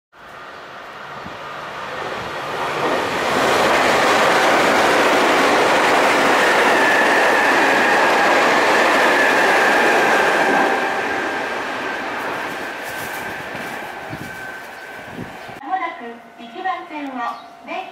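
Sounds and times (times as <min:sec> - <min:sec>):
train wheels clattering over rails: 0:01.9 - 0:15.6
steady high whine: 0:04.4 - 0:17.9.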